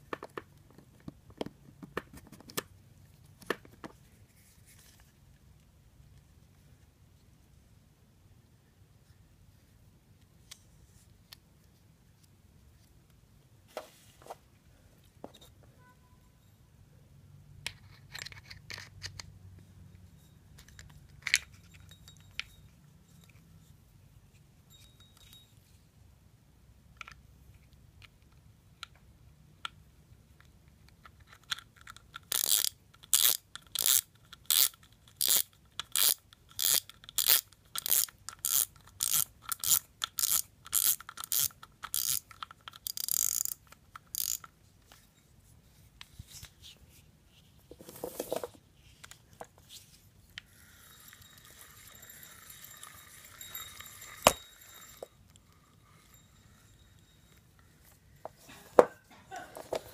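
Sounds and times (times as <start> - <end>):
fishing reel rasping clicks: 32.3 - 42.2, 42.8 - 44.5
spool clicking onto reel shaft: 36.0 - 44.5.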